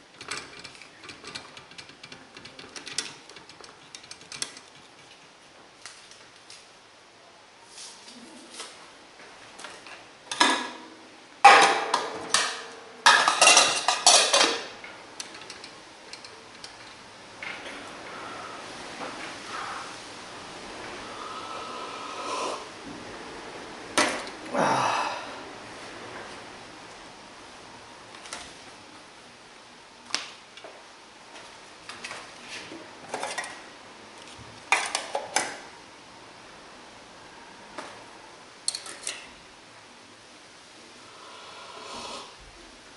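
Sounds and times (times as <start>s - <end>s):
metal pots clanging: 10.3s - 14.8s
metal pots clinking: 10.3s - 16.9s
metal cookpot and lid clinking: 11.5s - 14.7s.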